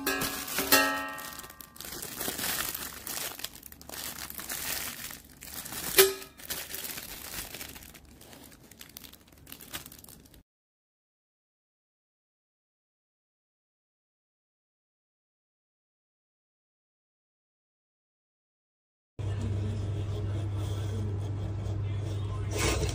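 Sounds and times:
plastic wrapping crinkling and tearing: 0.0 - 10.4.

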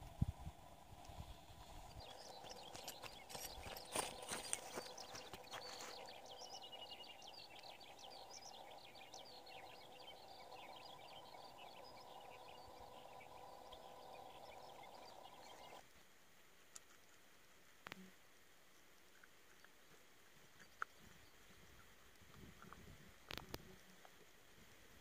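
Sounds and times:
birds chirping: 0.0 - 15.8
faint steady background hum: 0.0 - 25.0
dog paws padding through grass: 1.8 - 6.7.

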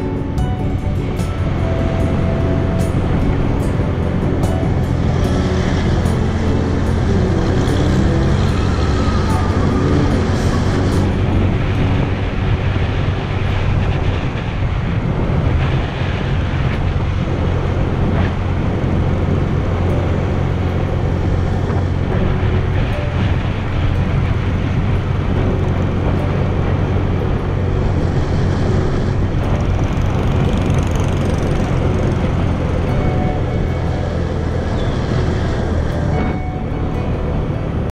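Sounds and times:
wind on microphone: 0.0 - 37.9
motorbike engine running: 16.5 - 37.3.

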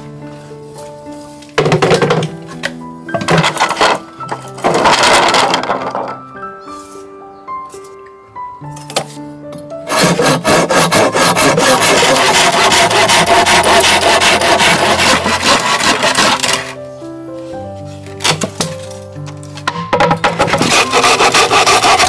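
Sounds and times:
background music: 0.0 - 22.0
hand saw cutting bamboo: 9.9 - 16.8, 20.4 - 22.0.

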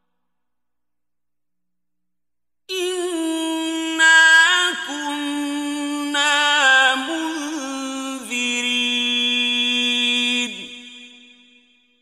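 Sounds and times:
man chanting melodically: 2.7 - 11.3.

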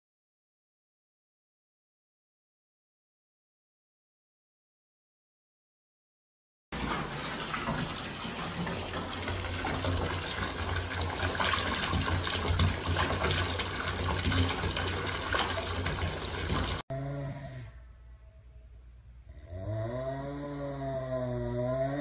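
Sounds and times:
water gushing into bathtub: 6.8 - 16.8.

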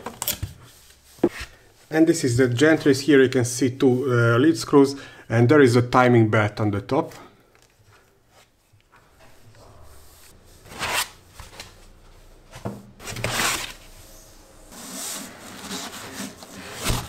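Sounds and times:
foam and cardboard scraping: 14.7 - 17.0.

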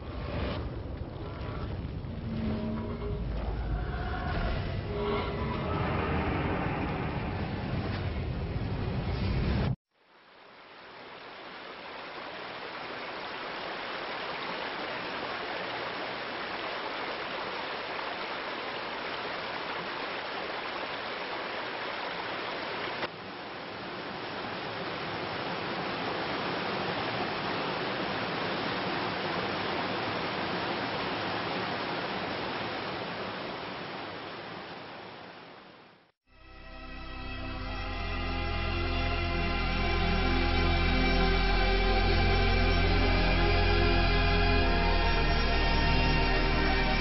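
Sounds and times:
river water rushing: 10.3 - 36.0.

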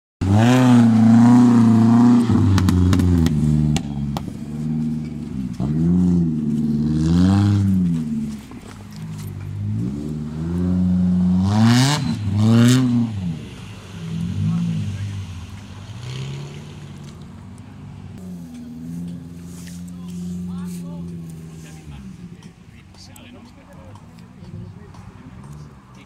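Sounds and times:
engine revving in bursts: 0.2 - 8.4, 9.6 - 17.0.

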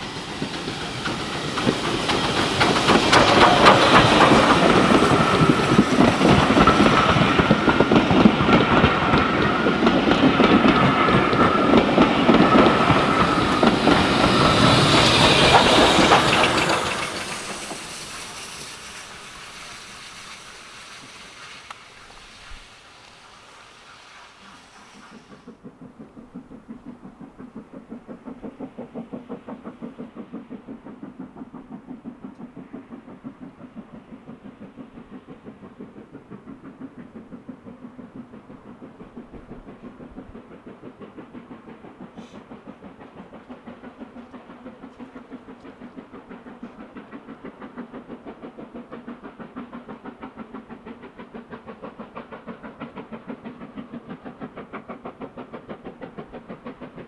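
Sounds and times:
steam locomotive exhaust chuffs: 0.0 - 57.0
brief hiss: 16.8 - 25.6, 42.2 - 42.4.

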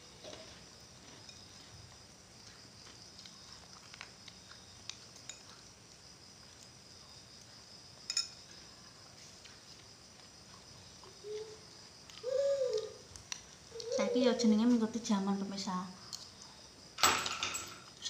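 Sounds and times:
spoon clinking glass bowl: 8.1 - 8.4.

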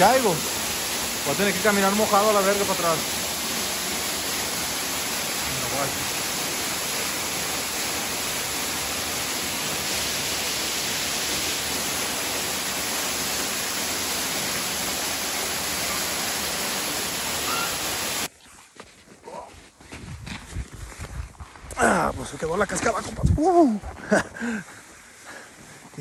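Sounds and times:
waterfall rushing: 0.0 - 18.3.

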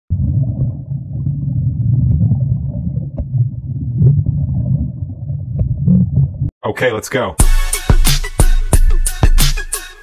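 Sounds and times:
muffled underwater rumble: 0.1 - 6.5.

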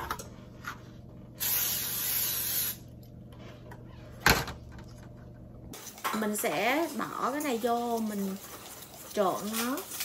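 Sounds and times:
cooking spray hissing: 1.4 - 2.9.

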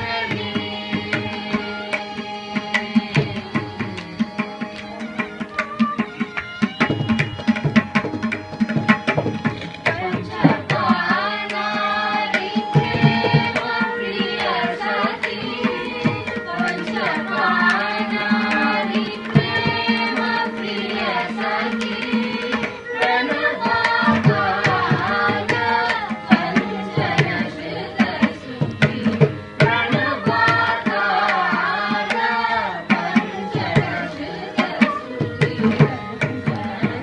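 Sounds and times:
group of singers: 0.0 - 37.0.

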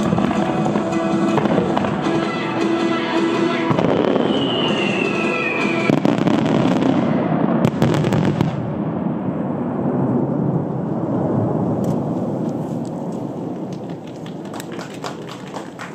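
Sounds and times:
fireworks sharp cracks: 0.0 - 9.1
fireworks rumbling volley: 0.0 - 15.9.

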